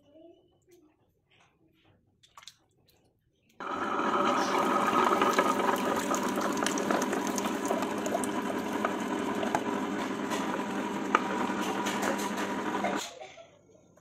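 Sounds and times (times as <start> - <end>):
wet churning of batter: 2.2 - 13.0
wet grinder motor hum: 3.6 - 13.0.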